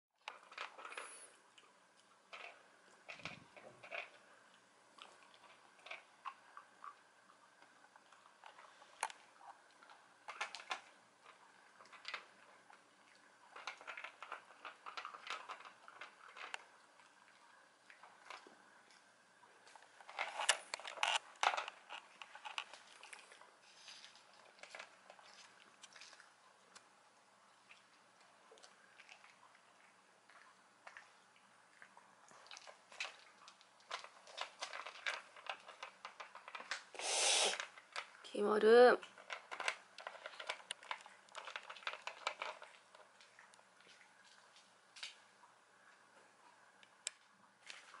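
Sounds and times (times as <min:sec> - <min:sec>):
pets crunching hard treats: 0:00.3 - 0:04.3, 0:04.9 - 0:19.0, 0:19.6 - 0:26.9, 0:31.7 - 0:38.2, 0:39.0 - 0:45.2.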